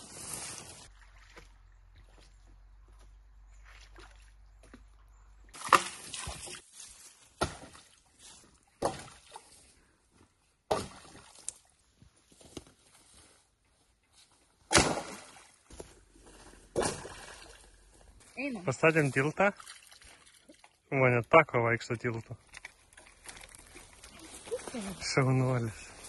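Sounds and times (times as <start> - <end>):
splashes in shallow water: 5.5 - 6.7, 16.7 - 17.8, 19.2 - 20.9.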